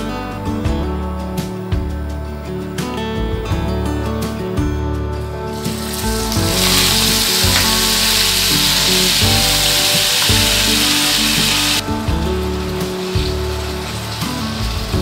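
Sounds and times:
background music: 0.0s - 15.0s
food sizzling in frying pan: 5.5s - 15.0s.

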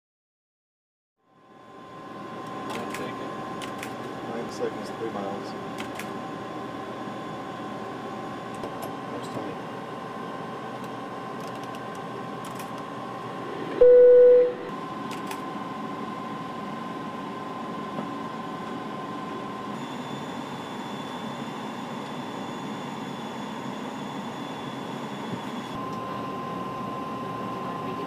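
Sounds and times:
cockpit hum and hiss: 1.3s - 28.0s
electronic alert tone: 13.7s - 14.7s.

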